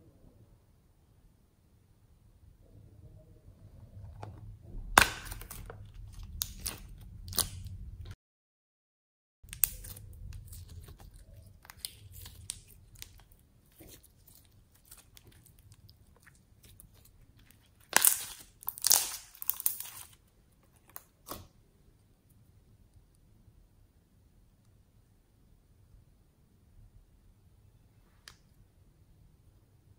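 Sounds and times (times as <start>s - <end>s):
slime crackling and popping: 5.0s - 8.1s, 9.5s - 21.5s.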